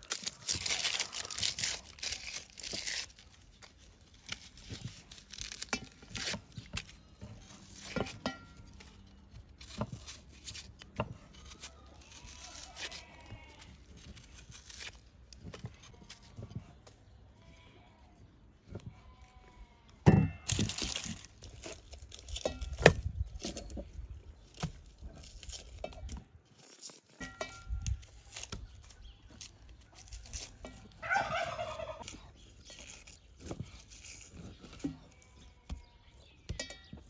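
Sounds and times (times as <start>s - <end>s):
knife peeling onion: 0.0s - 16.8s, 24.4s - 36.6s.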